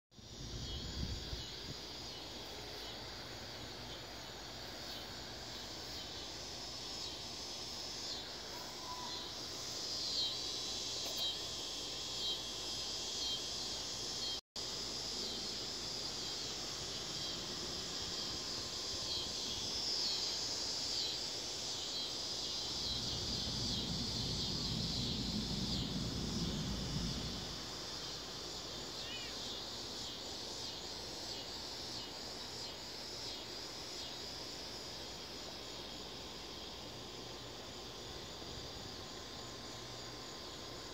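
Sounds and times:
insects shrilling: 0.2s - 34.6s
low rumble: 23.0s - 27.8s.

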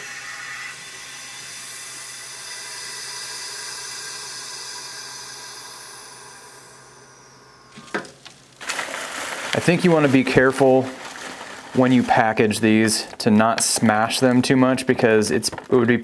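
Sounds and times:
vacuum sealer pump running: 0.0s - 12.5s
foil bag crackling: 7.8s - 13.2s.

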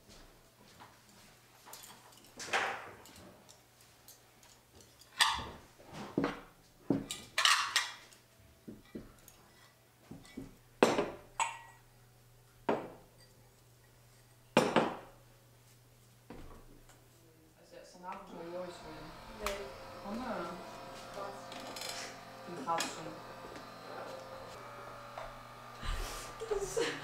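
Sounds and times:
plates and cutlery clinking on table: 4.4s - 11.8s.

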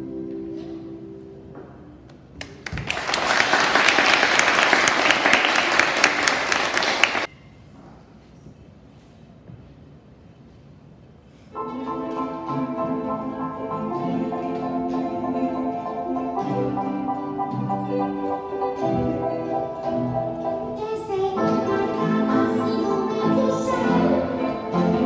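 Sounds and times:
ukuleles and guitars strumming: 0.0s - 1.4s, 11.6s - 25.0s.

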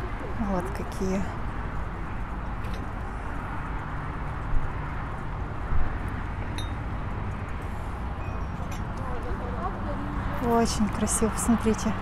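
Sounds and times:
market background rumble: 0.0s - 3.9s, 6.8s - 12.0s.

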